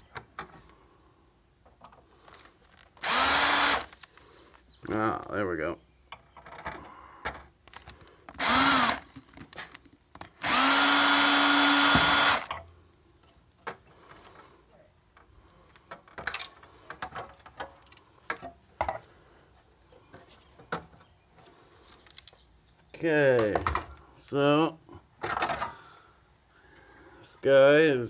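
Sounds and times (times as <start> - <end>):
power drill spinning: 2.3 - 4.2, 8.3 - 9.1, 10.3 - 12.5.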